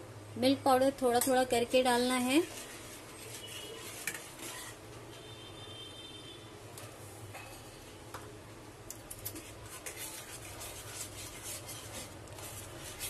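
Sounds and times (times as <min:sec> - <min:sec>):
metal spoon scraping metal pan: 0:02.4 - 0:04.8.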